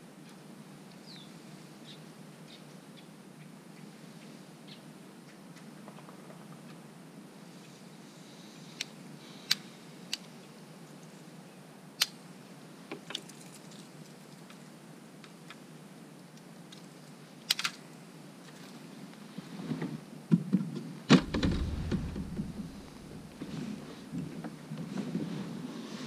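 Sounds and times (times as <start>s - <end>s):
rustling and knocks: 20.4s - 25.3s
heavy thud on plastic seat: 21.1s - 23.5s.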